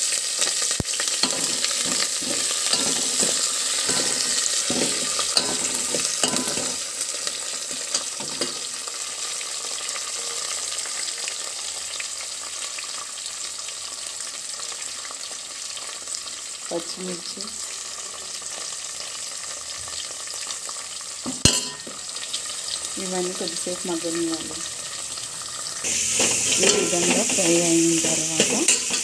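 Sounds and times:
onions sizzling in hot oil: 0.0 - 29.0
steel ladle stirring and scraping: 1.2 - 6.9, 25.8 - 29.0.

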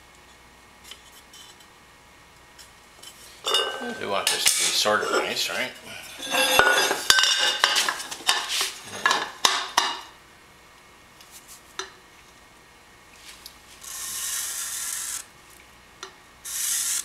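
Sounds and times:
metal tube clattering on steel: 6.2 - 10.1
marker rubbing on metal tube: 16.5 - 17.0.

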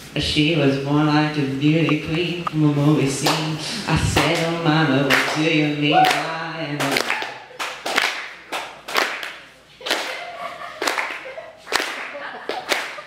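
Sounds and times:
hand claps echoing: 6.8 - 10.2, 10.8 - 13.0.

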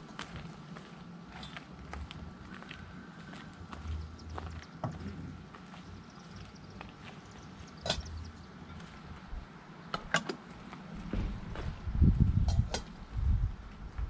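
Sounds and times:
metal vessels clinking: 7.8 - 8.2
low rumble: 10.9 - 14.0.

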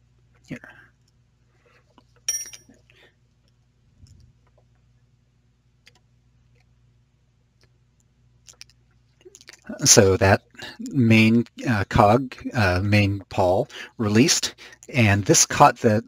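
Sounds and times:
faint small clicks and taps: 5.8 - 6.8, 7.6 - 9.7.

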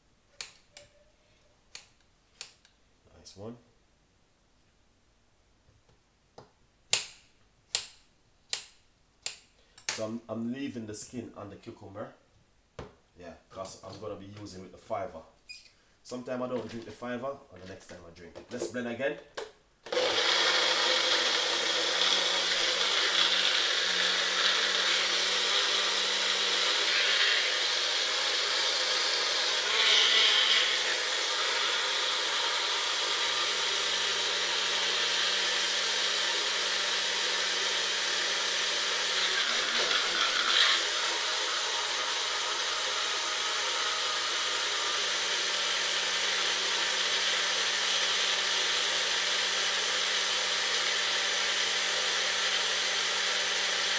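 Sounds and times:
blender motor whirring: 19.9 - 53.9.

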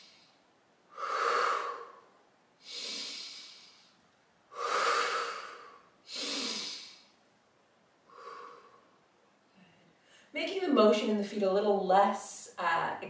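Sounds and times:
woman breathing deeply: 0.0 - 7.2, 8.0 - 9.0, 9.6 - 10.3.

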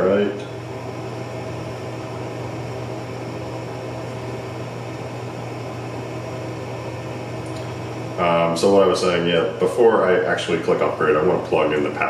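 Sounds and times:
low mechanical hum with hiss: 0.0 - 12.0.

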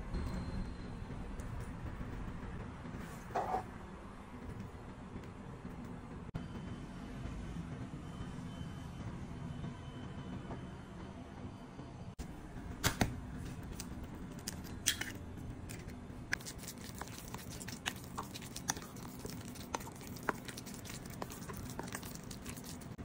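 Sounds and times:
spatula stirring sticky filling: 14.3 - 23.0.

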